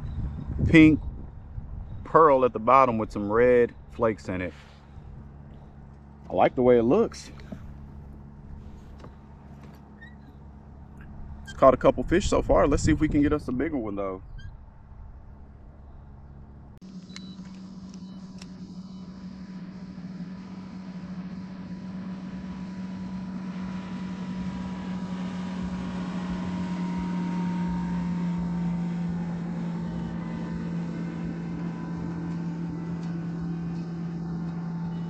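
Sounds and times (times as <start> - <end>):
electric motor humming: 16.9 - 35.0.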